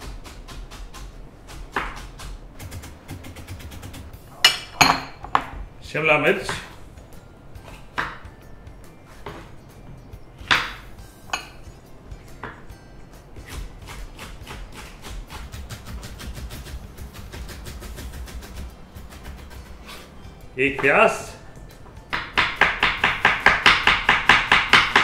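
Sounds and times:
knife chopping on wooden board: 0:00.0 - 0:04.1, 0:10.4 - 0:10.8, 0:13.4 - 0:20.1, 0:22.1 - 0:25.0.

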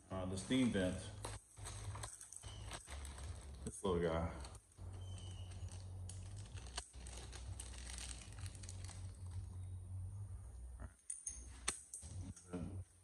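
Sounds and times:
steady low hum: 0:00.0 - 0:13.0
plastic bag crinkling: 0:00.4 - 0:09.7.

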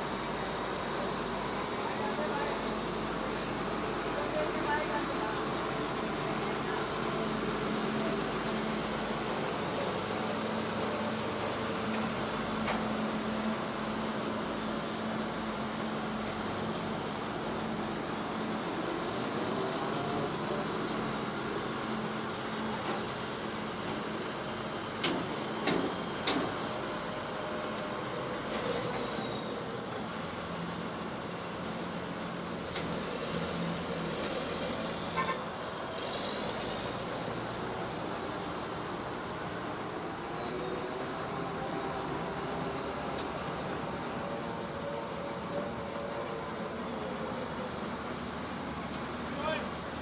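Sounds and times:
combine harvester engines running: 0:00.0 - 0:50.0.

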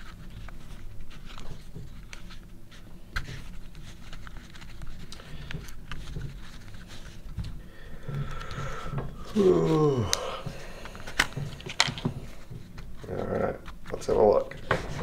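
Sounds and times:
cards rubbing and sliding: 0:00.0 - 0:07.4.

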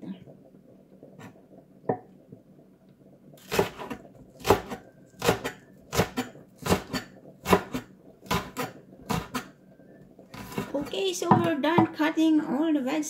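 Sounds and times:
cleaver chopping on wooden board: 0:04.4 - 0:09.4.

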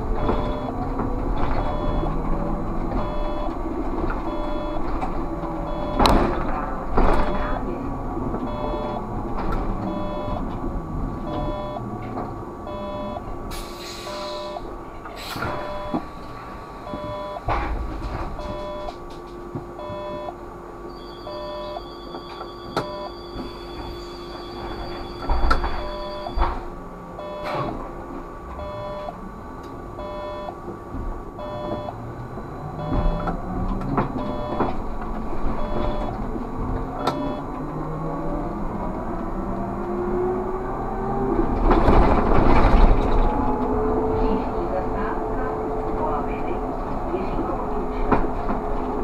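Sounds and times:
steady tone: 0:00.0 - 0:06.4, 0:08.4 - 0:13.5, 0:14.1 - 0:17.5, 0:19.7 - 0:39.6
cab beeping: 0:00.0 - 0:07.7, 0:08.4 - 0:17.6, 0:18.2 - 0:38.2
electric drive whine: 0:00.0 - 0:42.0
short hiss: 0:13.5 - 0:14.3.

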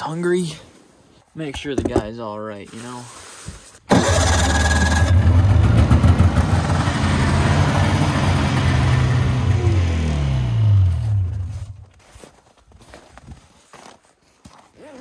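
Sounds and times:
vehicle engine running: 0:03.9 - 0:11.9.

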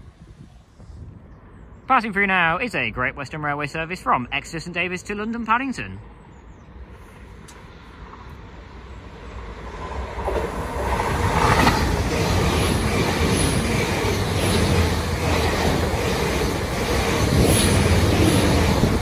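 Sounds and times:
train passing on rails: 0:06.7 - 0:19.0.

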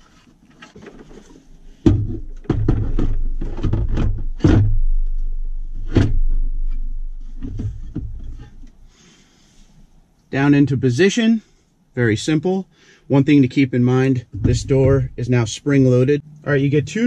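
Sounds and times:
metal knocks thuds and scrapes: 0:00.6 - 0:08.7, 0:14.2 - 0:15.3.

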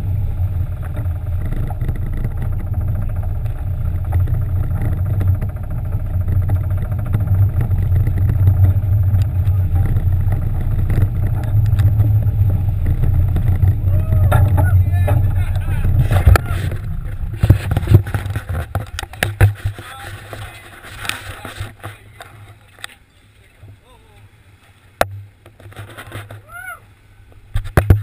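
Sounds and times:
boat engines droning: 0:00.0 - 0:27.6
short knocks and clatters: 0:00.7 - 0:22.9.

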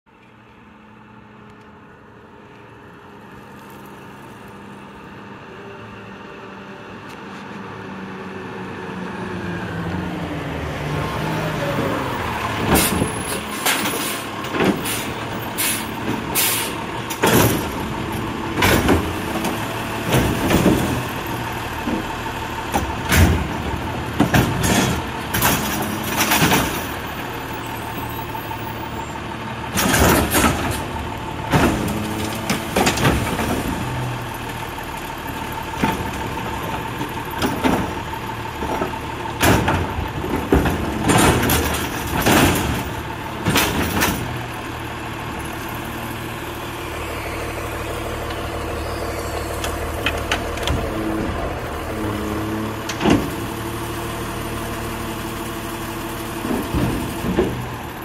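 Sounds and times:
garbage truck engine: 0:00.1 - 0:58.0
carts banging and clanking: 0:12.6 - 0:34.3, 0:35.6 - 0:44.7
lifting arm whine: 0:45.4 - 0:53.4.

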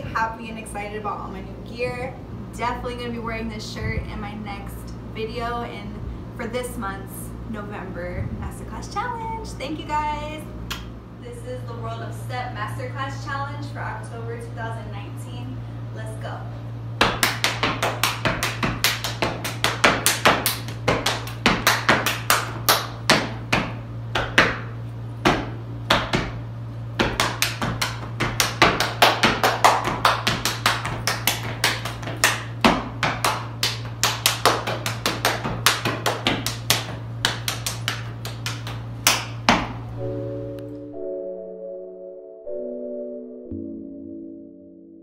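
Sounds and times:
hand claps: 0:10.7 - 0:10.9, 0:17.0 - 0:24.7, 0:27.0 - 0:39.8
sneakers stomping on concrete: 0:17.0 - 0:26.4, 0:27.0 - 0:33.2.

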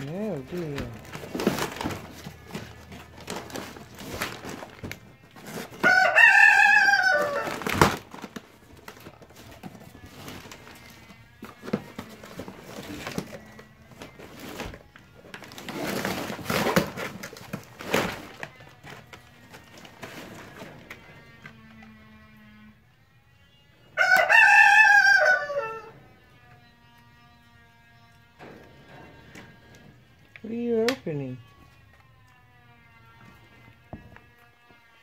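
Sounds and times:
wrapping paper crinkling and tearing: 0:00.0 - 0:22.2.

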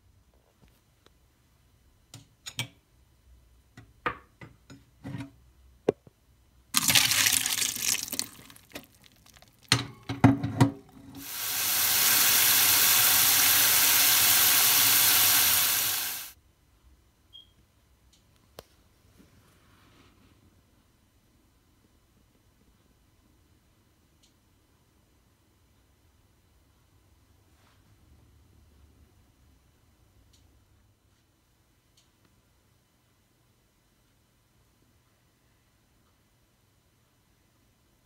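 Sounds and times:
water gushing: 0:06.8 - 0:09.8, 0:11.1 - 0:16.4
plastic strainer clattering: 0:06.8 - 0:11.0.

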